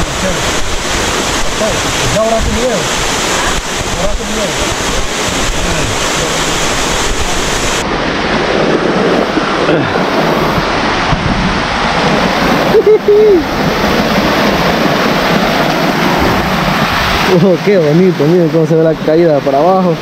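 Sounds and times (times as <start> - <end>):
waterfall rushing: 0.0 - 20.0
person shouting: 12.7 - 13.5.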